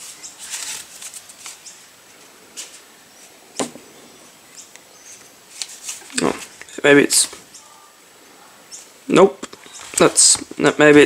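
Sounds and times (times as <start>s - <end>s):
dull knock: 3.6s - 3.9s.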